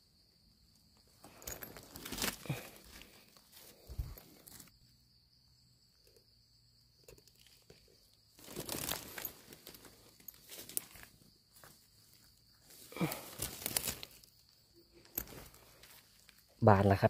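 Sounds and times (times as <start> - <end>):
dry leaves rustling and crackling: 1.6 - 4.7, 8.4 - 11.8, 12.7 - 14.3.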